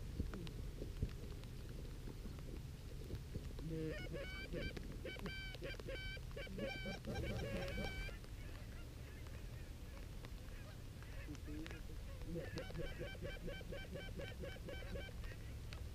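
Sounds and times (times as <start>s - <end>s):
geese honking: 3.7s - 15.6s.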